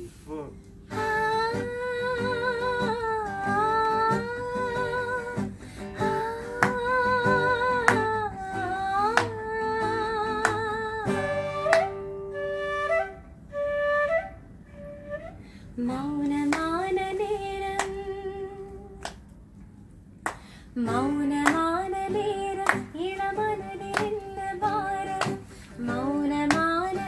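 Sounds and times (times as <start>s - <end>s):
classical guitar: 0.8s - 15.4s, 20.8s - 27.0s
bamboo flute: 11.0s - 15.4s.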